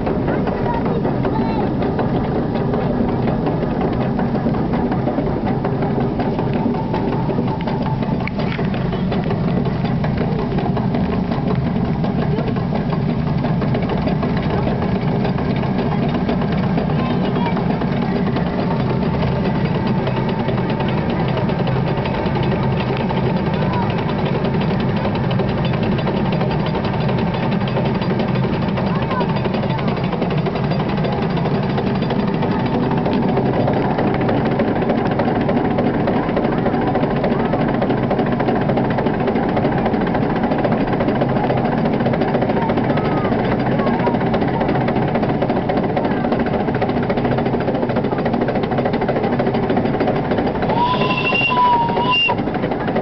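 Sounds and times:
steam locomotive rumble: 0:00.0 - 0:53.0
wheels clattering on track: 0:00.0 - 0:53.0.

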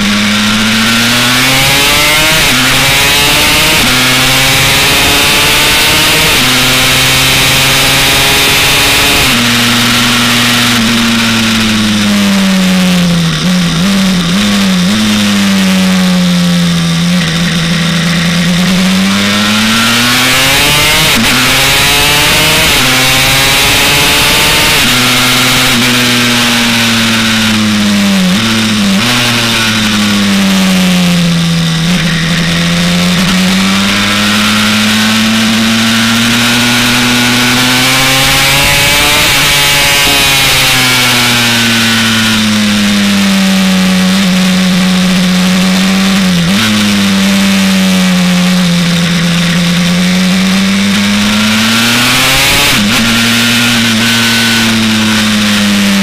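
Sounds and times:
two-stroke race bike engine: 0:00.0 - 0:56.0.

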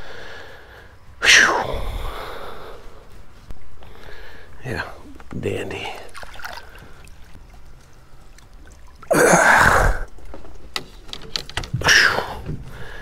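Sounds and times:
water trickling: 0:05.4 - 0:10.8.

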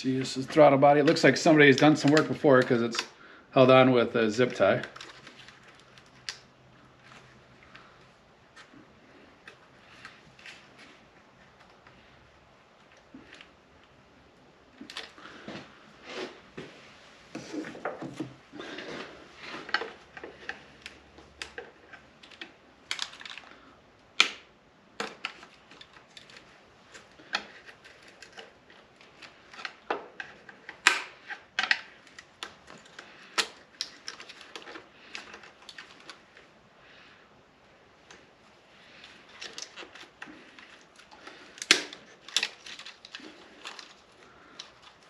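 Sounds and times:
plastic parts snapping: 0:01.0 - 0:03.2, 0:19.6 - 0:36.4, 0:38.9 - 0:45.0.

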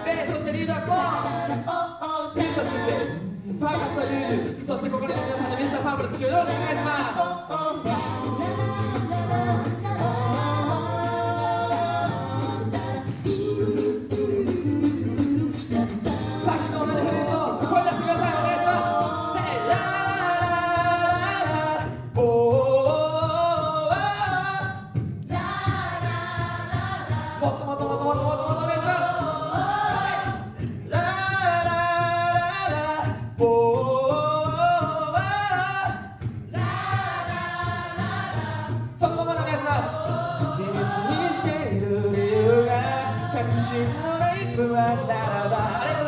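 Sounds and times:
low bass vocal part: 0:00.0 - 0:21.6
voices singing in harmony: 0:00.0 - 0:46.0.

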